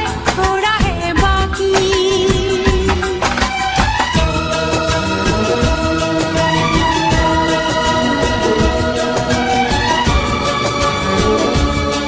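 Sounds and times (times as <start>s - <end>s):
steady percussion beat: 0.0s - 12.0s
held melody notes: 4.2s - 12.0s.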